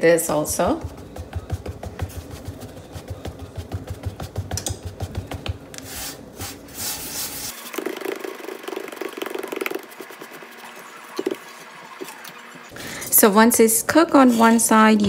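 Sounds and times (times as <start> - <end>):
hands patting dough: 0.3 - 10.4
palm rubbing dough: 0.4 - 11.4.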